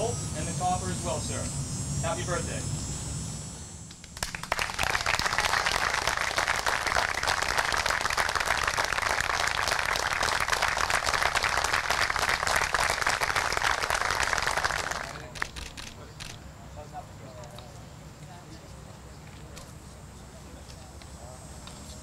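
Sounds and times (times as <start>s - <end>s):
people applauding: 4.0s - 15.9s.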